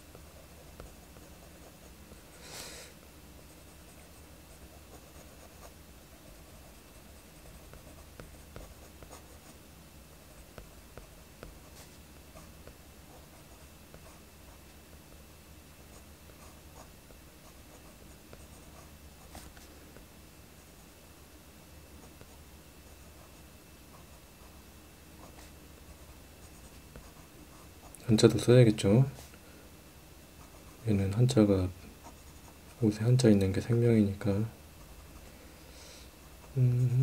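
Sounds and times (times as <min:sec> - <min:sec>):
faint room hum: 0:00.0 - 0:37.0
pencil scratching on paper: 0:03.4 - 0:09.6, 0:25.2 - 0:28.4, 0:32.0 - 0:33.0.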